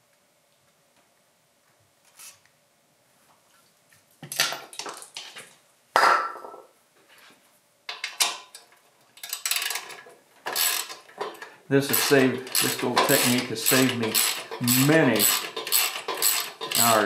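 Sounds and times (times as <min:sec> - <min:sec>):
metal hand tools clinking: 0:09.2 - 0:17.0.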